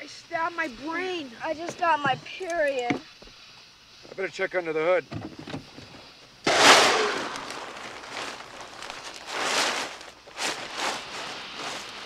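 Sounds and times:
plastic-wrapped items rustling: 6.5 - 12.0
shuffling: 7.2 - 12.0.

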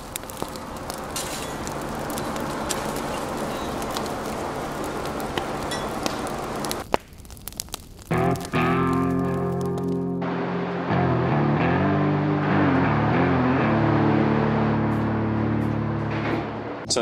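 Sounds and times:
wood fire crackling and popping: 0.0 - 10.4
guitar music: 8.1 - 17.0.

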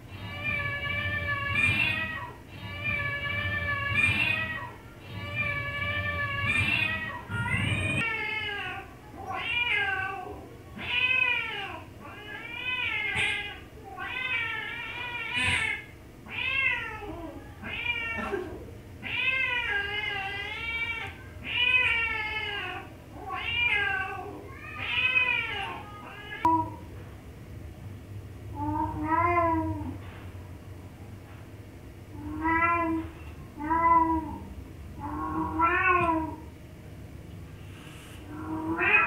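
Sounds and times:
cat meowing: 0.1 - 18.4, 32.2 - 36.4, 38.3 - 39.0.

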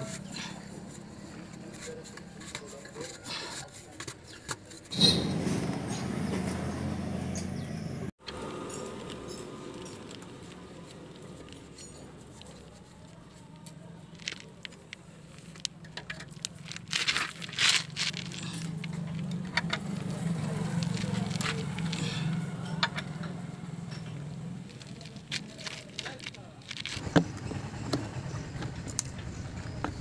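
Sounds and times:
metal clatter: 14.2 - 29.5.

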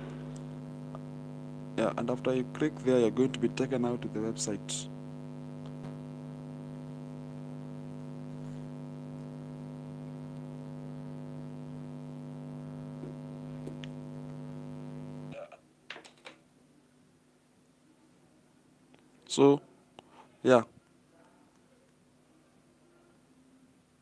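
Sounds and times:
buzzy electrical hum: 0.0 - 15.6.

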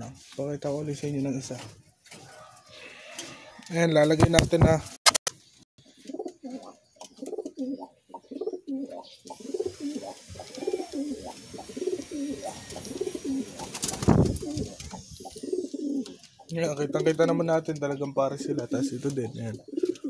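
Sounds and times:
pigeons cooing: 5.8 - 20.0
wings fluttering: 8.4 - 17.2.

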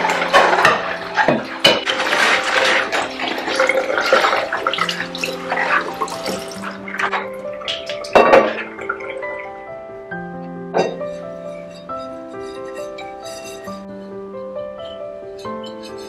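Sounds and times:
tap water running into a sink: 0.0 - 9.5
soft background music: 0.0 - 16.0
glass knocking: 5.2 - 9.3, 10.7 - 11.2.

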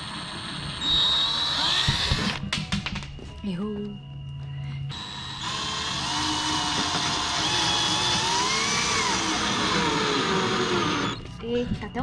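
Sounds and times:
drill-driver motor whining: 0.0 - 2.4, 4.9 - 11.3.

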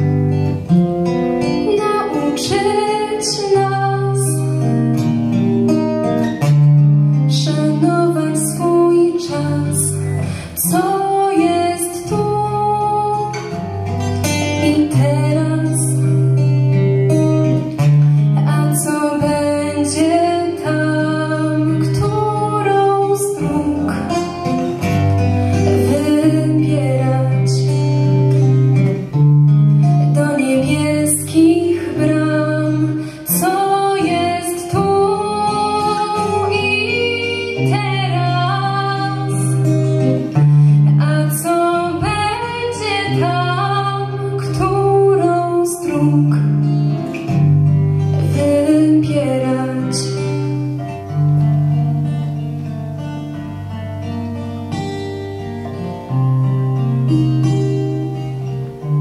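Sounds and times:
acoustic guitar: 0.0 - 59.0
woman singing: 1.0 - 5.2, 7.2 - 16.8, 17.4 - 29.0, 29.9 - 47.3, 48.0 - 50.8.

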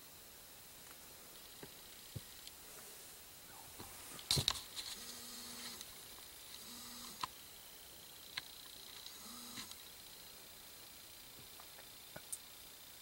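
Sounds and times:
faint ticks: 4.9 - 7.4, 11.3 - 12.6
camcorder zoom motor whining: 5.0 - 5.9, 6.5 - 7.3, 9.0 - 9.8.

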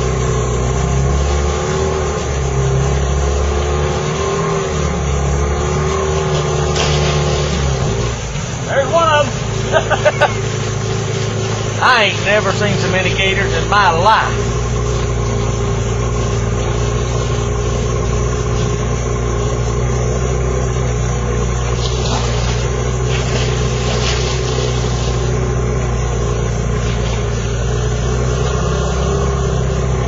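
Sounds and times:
motor idling: 0.0 - 30.0.

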